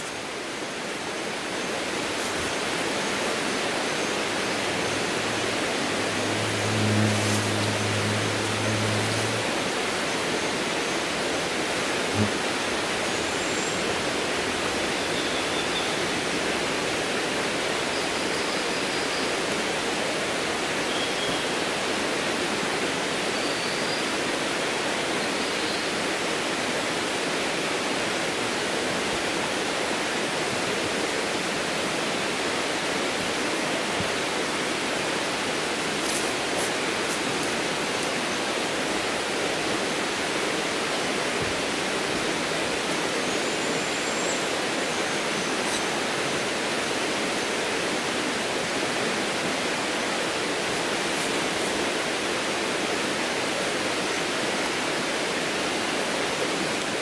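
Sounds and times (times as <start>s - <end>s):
stream water rushing: 0.0s - 57.0s.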